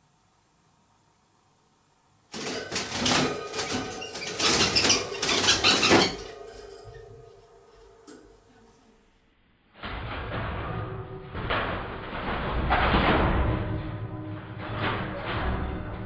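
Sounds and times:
birds frantic wing-flapping: 2.3s - 6.8s
birds clattering against wire cage: 2.3s - 7.3s.

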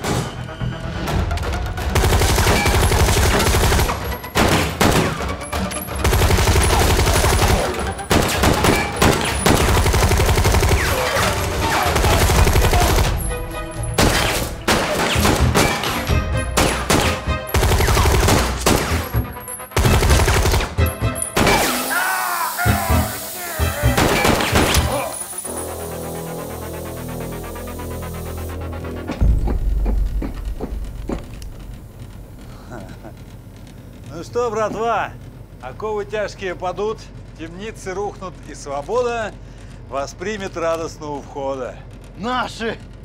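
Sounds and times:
tense action music: 0.0s - 34.3s
gunshots: 1.9s - 5.4s, 6.0s - 13.3s, 14.0s - 19.2s, 19.8s - 20.8s, 21.4s - 21.9s, 23.9s - 25.1s.

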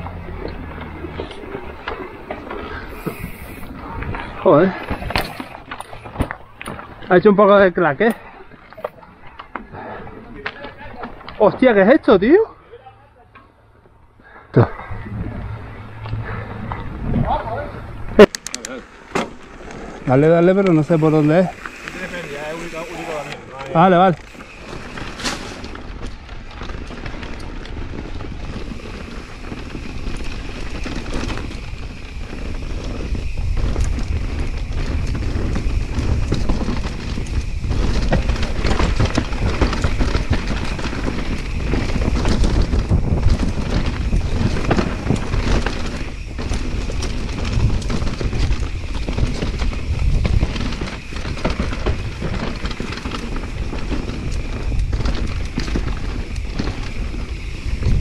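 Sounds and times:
wind buffeting microphone: 0.0s - 11.6s, 14.8s - 23.2s, 23.9s - 58.0s
bike rattling and clattering: 0.0s - 58.0s.

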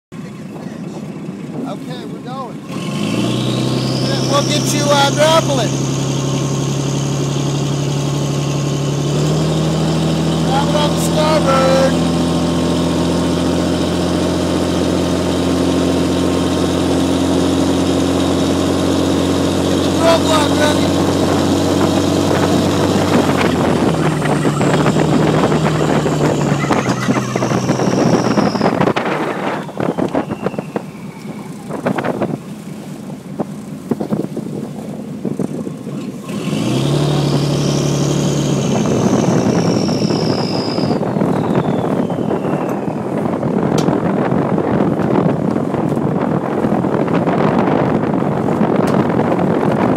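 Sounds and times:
boat engine humming: 0.1s - 49.9s
water and wind hiss: 0.4s - 49.9s
high whine: 3.8s - 33.5s, 37.0s - 45.3s.

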